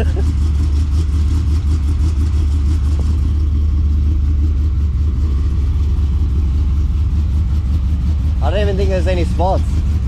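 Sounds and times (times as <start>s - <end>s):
vehicle engine droning: 0.0s - 10.0s.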